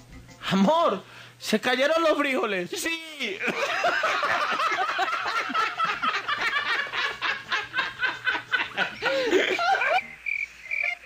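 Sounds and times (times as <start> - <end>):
people laughing: 3.2 - 10.1.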